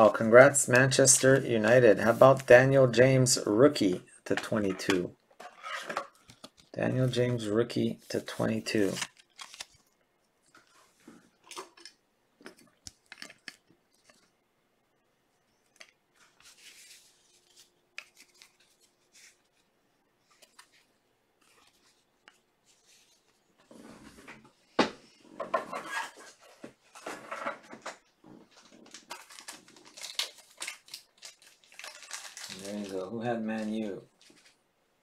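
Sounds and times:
plastic and paper rustling: 8.0s - 9.9s, 15.7s - 24.2s, 25.8s - 34.6s.

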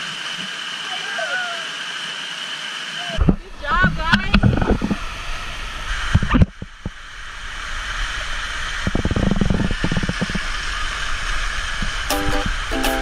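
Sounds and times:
waterfall rushing and splashing: 0.0s - 13.0s
low rumbling thumps: 3.2s - 7.0s, 8.7s - 12.1s.

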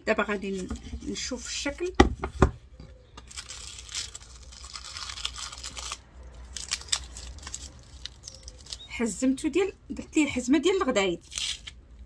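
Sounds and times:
tape peeling: 3.2s - 8.9s, 11.2s - 11.8s
sharp crackles: 3.3s - 8.9s.

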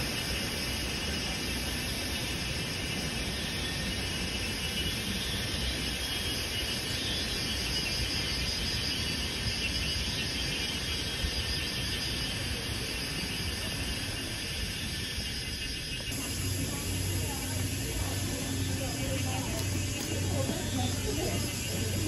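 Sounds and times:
high insect buzz: 15.5s - 22.0s.

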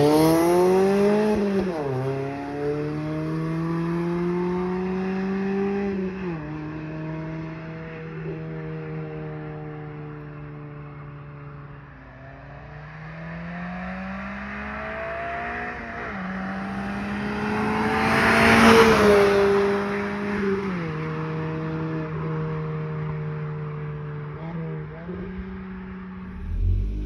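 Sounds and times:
car engine accelerating past: 0.0s - 8.8s, 25.4s - 27.0s.

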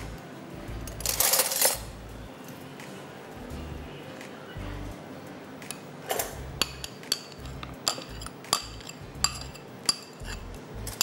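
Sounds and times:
spoon clinking against bowl: 6.6s - 11.0s.

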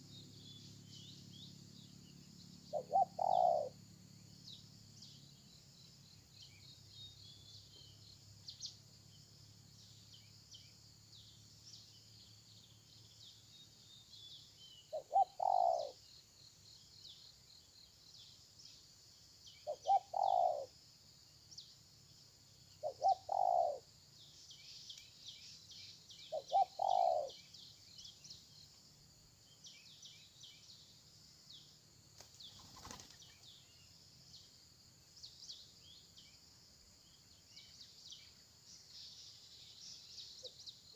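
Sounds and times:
dove cooing: 2.7s - 3.7s, 14.9s - 16.0s, 19.7s - 20.7s, 22.8s - 23.8s, 26.3s - 27.4s.

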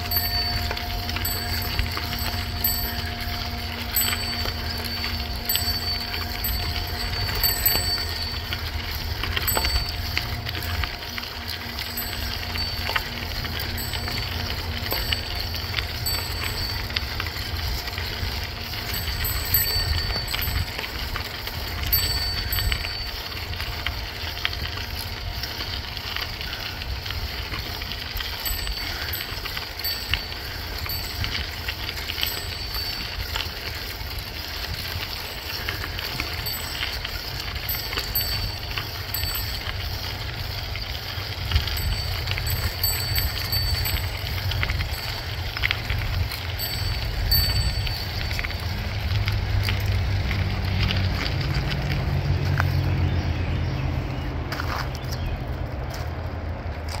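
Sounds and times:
bicycle tyres on gravel: 0.0s - 57.0s
gravel and bike clicks: 0.0s - 57.0s
wind on microphone: 26.4s - 49.8s.

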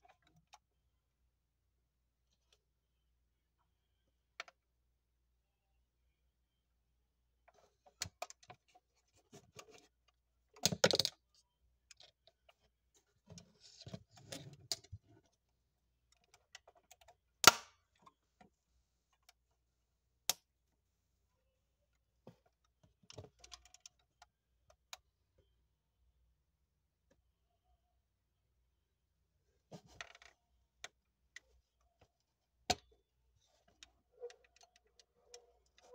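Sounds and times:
model car clicks and knocks: 10.6s - 11.2s.

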